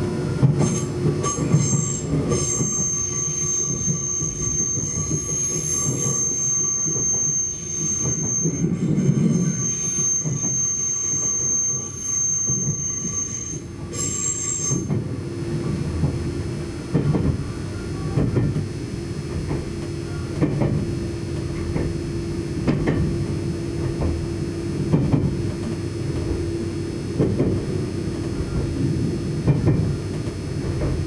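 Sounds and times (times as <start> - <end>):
train wheel squeal: 0.0 - 15.2
train running rumble and hum: 0.0 - 31.0.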